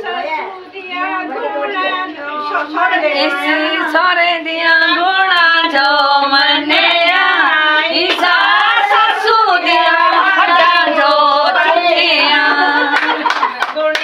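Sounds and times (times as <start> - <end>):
women singing together: 0.0 - 14.0
hand claps: 12.8 - 14.0.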